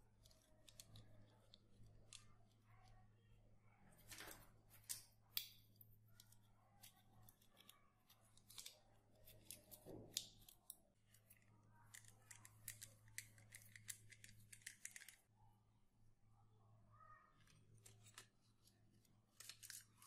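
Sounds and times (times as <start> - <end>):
plastic toy parts clicking: 0.2 - 3.0, 6.2 - 15.3, 17.4 - 20.0.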